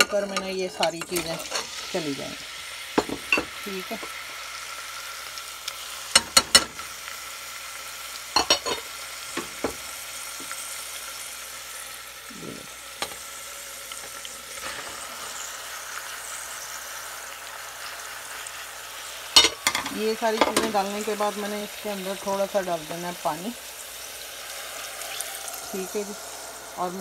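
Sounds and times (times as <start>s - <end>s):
steady hiss: 0.2s - 27.0s.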